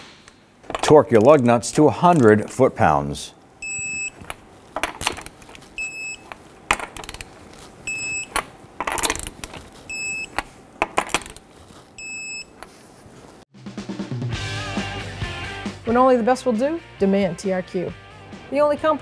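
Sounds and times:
socket clicking on lug nuts: 0:00.6 - 0:02.6, 0:03.7 - 0:11.4
torque wrench beeping: 0:03.6 - 0:11.4, 0:12.0 - 0:12.7.

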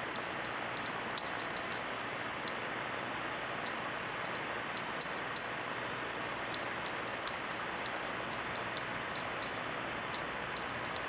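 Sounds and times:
glass wind bell tinkling: 0:00.2 - 0:11.0.

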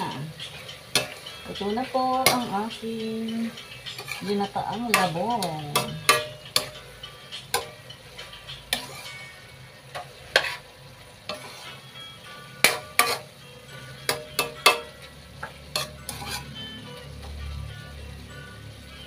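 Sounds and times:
food sizzling: 0:00.0 - 0:19.0
spatula clicking on pan: 0:00.8 - 0:01.3, 0:02.2 - 0:07.9, 0:12.6 - 0:13.3, 0:14.0 - 0:16.4.

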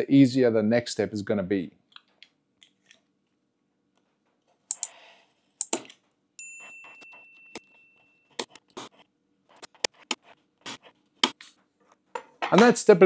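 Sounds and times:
bell-like ding: 0:06.4 - 0:08.4
knife scratching acrylic: 0:08.4 - 0:12.0.

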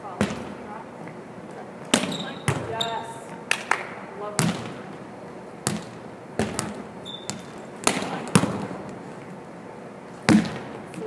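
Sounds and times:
volleyball smacks in a gym: 0:00.0 - 0:00.7, 0:01.8 - 0:05.0, 0:05.6 - 0:09.0, 0:10.2 - 0:11.0.

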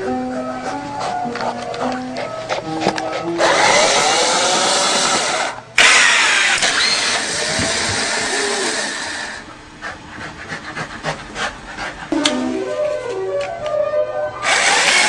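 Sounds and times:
loud motor whirring: 0:03.4 - 0:09.5, 0:14.4 - 0:15.0.

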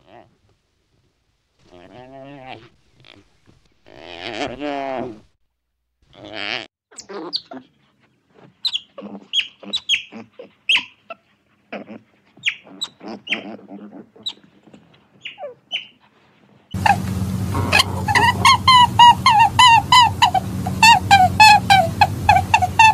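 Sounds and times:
animal call: 0:08.6 - 0:14.5, 0:15.2 - 0:16.0, 0:16.7 - 0:22.9.

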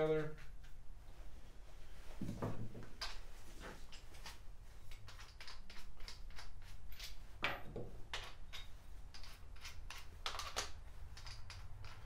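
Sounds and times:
tools clicking and knocking on workbench: 0:03.9 - 0:12.0.

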